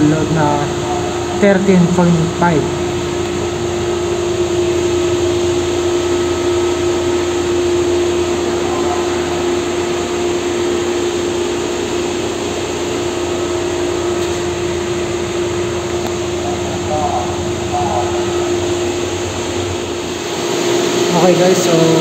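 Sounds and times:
pool pump motor whirring: 0.0s - 22.0s.

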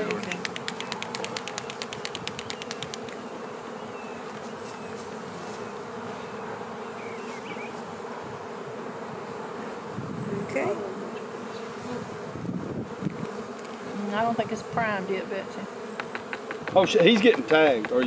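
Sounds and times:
honey bees buzzing: 0.0s - 18.0s
quick even ticks: 0.2s - 3.2s.

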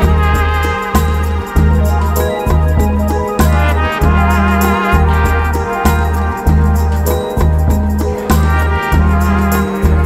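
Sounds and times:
background music with heavy bass: 0.0s - 10.0s.

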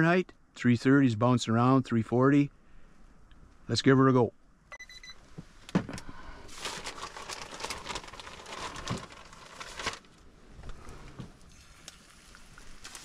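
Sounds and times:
plastic bag crinkling: 6.5s - 10.2s.

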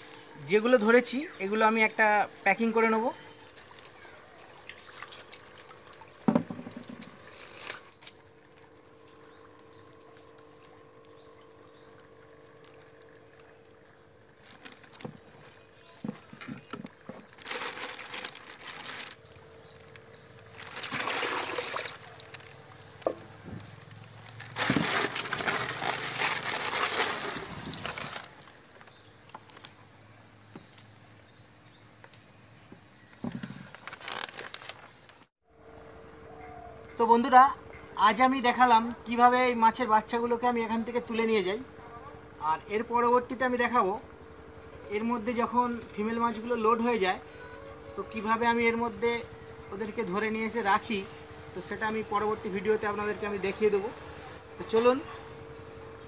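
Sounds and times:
water splashing and sloshing: 3.3s - 29.4s
plastic bag crinkling: 7.2s - 8.0s, 16.5s - 19.4s, 20.0s - 23.1s, 24.0s - 29.7s, 33.4s - 35.3s.

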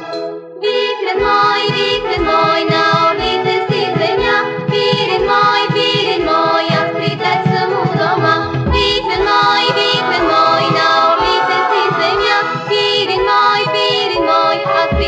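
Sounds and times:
sustained melody notes: 0.0s - 15.0s.

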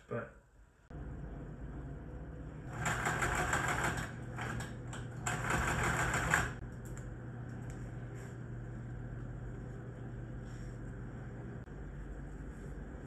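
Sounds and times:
steady low hum: 0.1s - 13.0s
sewing machine stitching: 2.7s - 6.6s.

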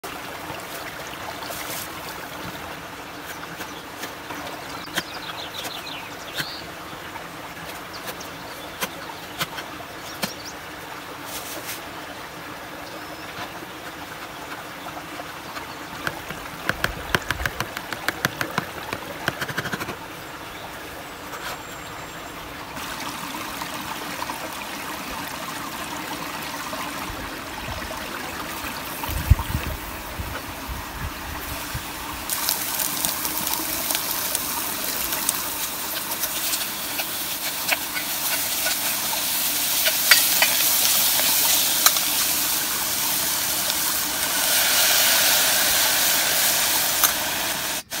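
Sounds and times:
flowing stream: 0.0s - 48.0s
food frying in a pot: 31.4s - 48.0s.

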